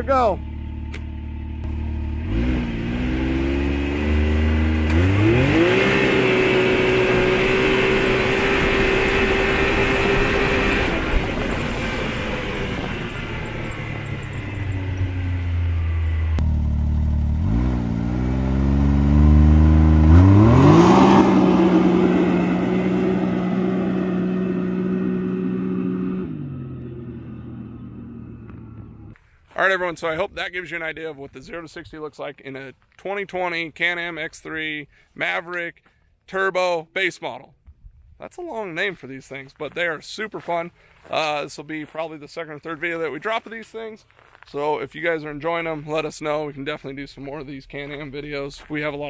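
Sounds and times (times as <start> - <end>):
engine revving hard: 1.6 - 14.4, 17.2 - 29.1.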